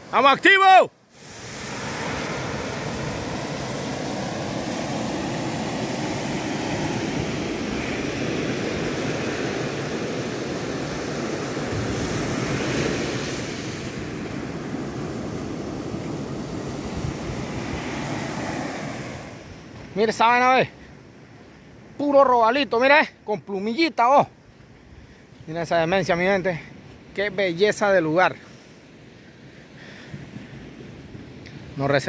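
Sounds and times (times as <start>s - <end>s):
surf washing onto gravel beach: 0.0s - 20.4s.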